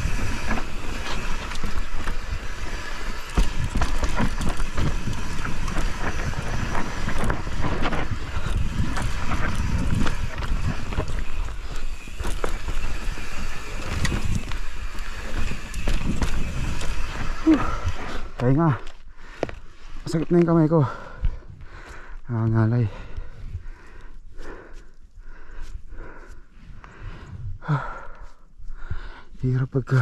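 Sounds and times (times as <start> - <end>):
bike rattling: 0.0 - 21.4
bike tyres rolling over rocks: 0.0 - 21.4
wind on microphone: 2.3 - 18.0.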